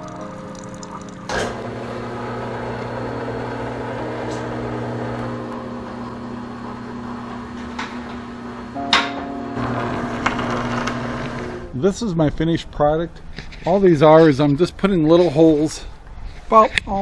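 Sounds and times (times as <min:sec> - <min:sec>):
drill press motor hum: 0:01.3 - 0:08.8, 0:09.6 - 0:11.7
drill bit drilling into wood: 0:09.9 - 0:11.7.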